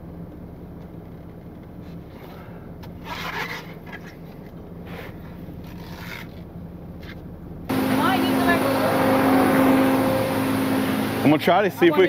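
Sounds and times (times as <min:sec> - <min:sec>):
truck engine running: 0:07.4 - 0:12.0.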